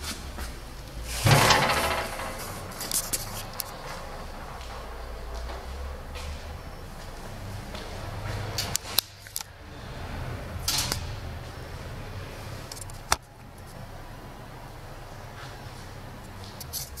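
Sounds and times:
steady low hum: 0:00.0 - 0:16.7
metallic clicks and knocks: 0:01.2 - 0:04.0.

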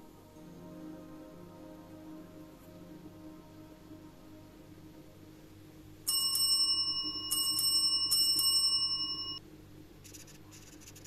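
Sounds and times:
small bell ringing: 0:06.1 - 0:09.4.

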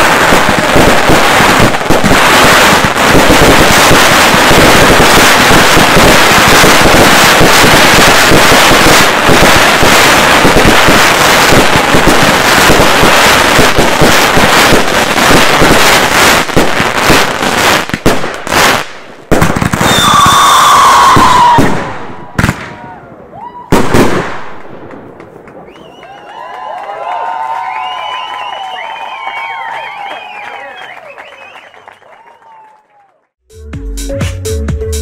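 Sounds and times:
fireworks crackling and banging: 0:00.0 - 0:23.0, 0:23.6 - 0:26.7
firework falling whistle: 0:19.8 - 0:22.0, 0:25.6 - 0:26.4, 0:27.6 - 0:32.8.

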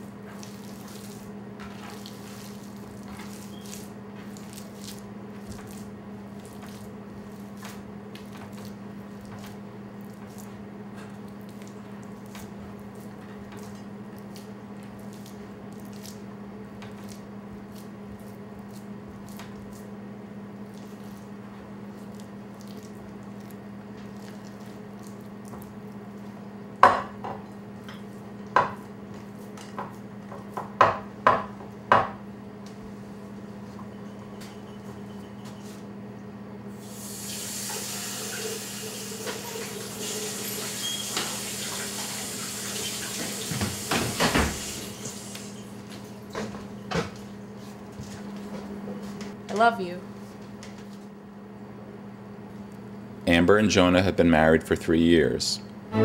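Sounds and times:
hands kneading raw meat: 0:00.0 - 0:26.8.

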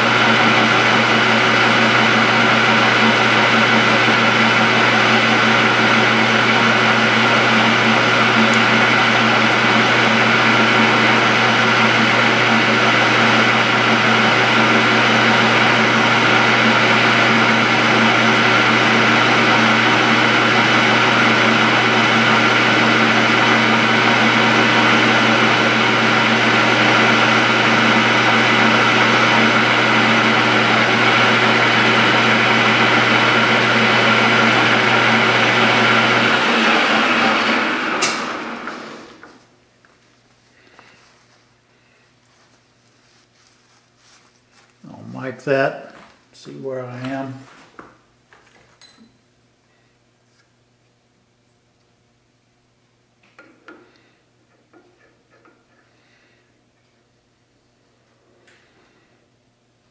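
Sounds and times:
metal lathe cutting steel: 0:00.0 - 0:39.1.

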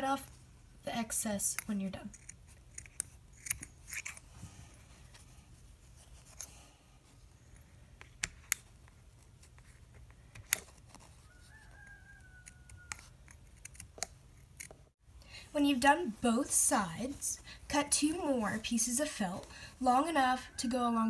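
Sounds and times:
scissors snipping felt: 0:01.6 - 0:04.3, 0:12.4 - 0:14.8.

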